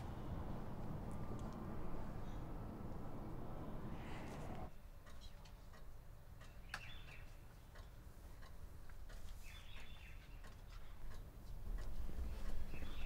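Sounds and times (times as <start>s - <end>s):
low steady hum: 0.0s - 5.4s.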